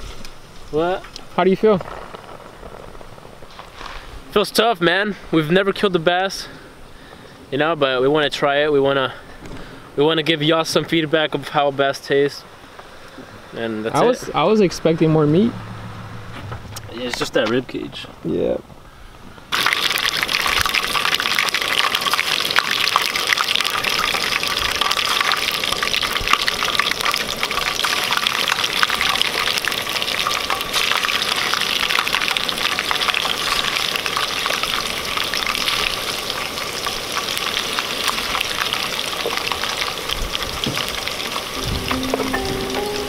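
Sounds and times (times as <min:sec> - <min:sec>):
fish frying in hot oil: 0:19.5 - 0:43.0.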